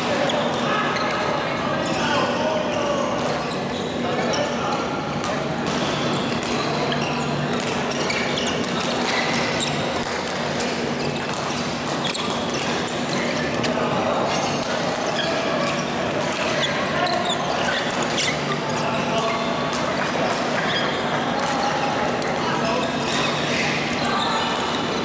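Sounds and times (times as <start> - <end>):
shoes squeaking on court floor: 0.0 - 25.0
rackets hitting shuttlecocks: 5.2 - 13.8, 14.4 - 16.5.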